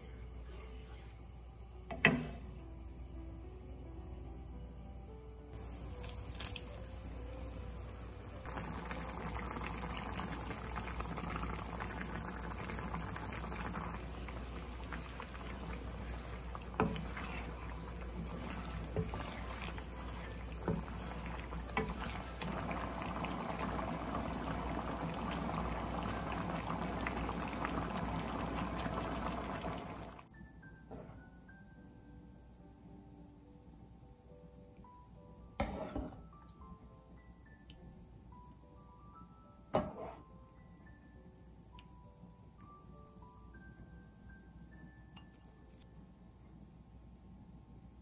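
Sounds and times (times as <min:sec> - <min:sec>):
sauce bubbling in a pan: 0:08.0 - 0:30.2.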